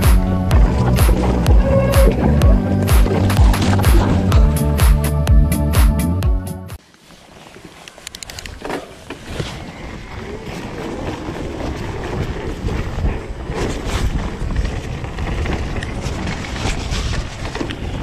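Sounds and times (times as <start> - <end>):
tyre and trail rumble: 0.0 - 5.1, 8.2 - 18.0
intro music: 0.0 - 6.8
bike clicks and knocks: 7.9 - 9.3
wind buffeting microphone: 9.2 - 18.0.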